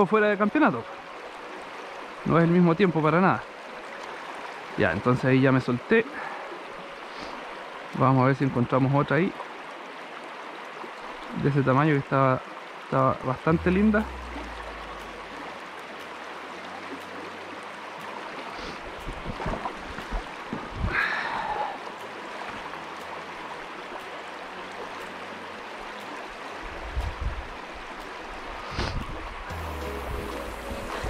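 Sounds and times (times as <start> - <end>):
river water rushing: 0.0 - 31.0
low thumps: 13.5 - 15.4
short falling pitch sound: 13.5 - 15.4.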